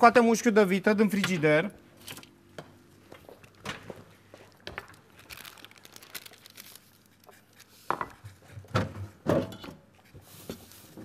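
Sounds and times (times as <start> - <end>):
rustling and crinkling: 2.9 - 8.3.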